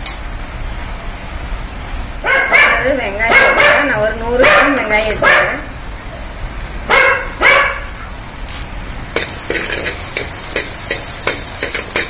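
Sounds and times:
dog barking: 0:02.2 - 0:05.7, 0:06.9 - 0:07.9
shallots sizzling in hot oil: 0:04.8 - 0:12.0
steel spoon scraping pot: 0:08.0 - 0:12.0.

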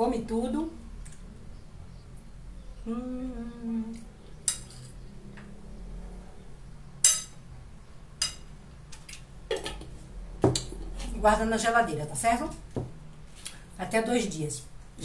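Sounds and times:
fork clinking and scraping on plate: 0:04.5 - 0:05.0.

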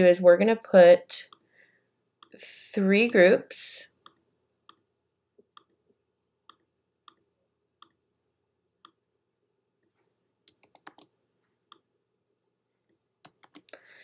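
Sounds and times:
computer mouse clicks: 0:01.3 - 0:01.5, 0:04.0 - 0:04.9, 0:05.5 - 0:05.8, 0:06.5 - 0:08.0, 0:09.8 - 0:11.1, 0:12.8 - 0:13.8.

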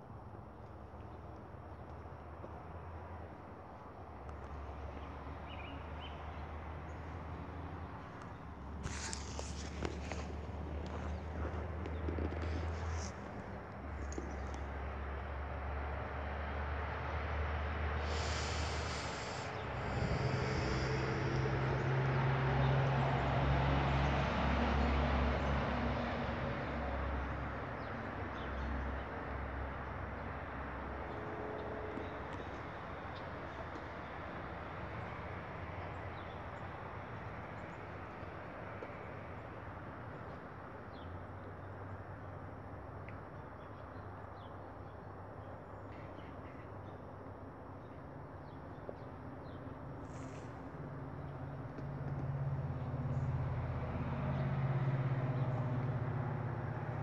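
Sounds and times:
steady hiss: 0:18.0 - 0:21.4.

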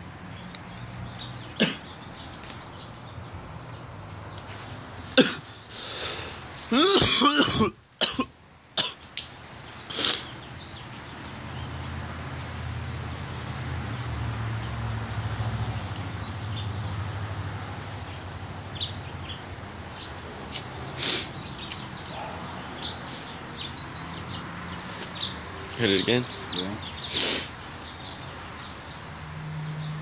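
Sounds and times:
person coughing: 0:01.6 - 0:01.9, 0:05.2 - 0:05.5, 0:06.7 - 0:09.0.

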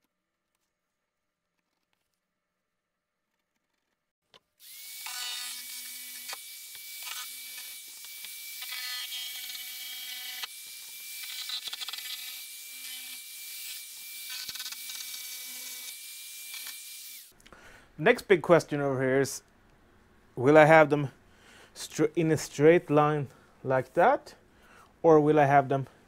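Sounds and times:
power tool cutting plywood: 0:04.6 - 0:17.3.

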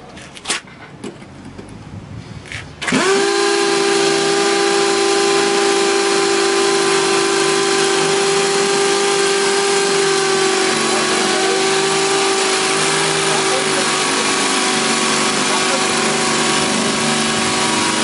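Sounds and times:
drill motors whining: 0:02.8 - 0:18.0.

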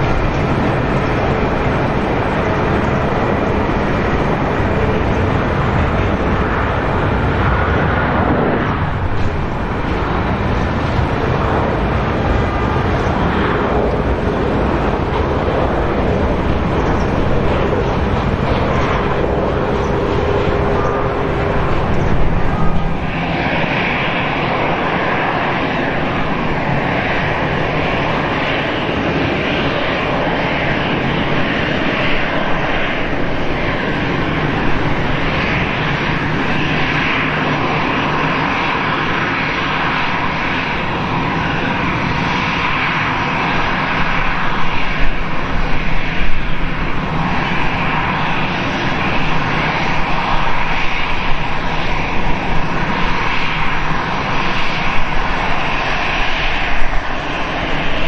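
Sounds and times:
jet engines idling: 0:00.0 - 0:58.0.

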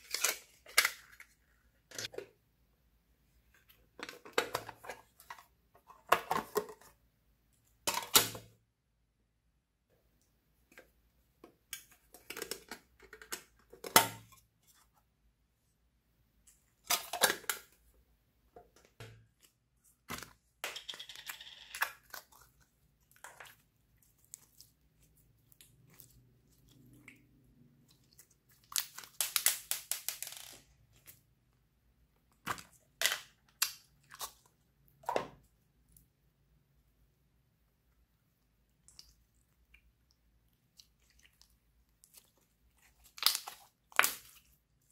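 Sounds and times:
slime squishing and crackling: 0:21.4 - 0:30.2, 0:38.8 - 0:44.9.

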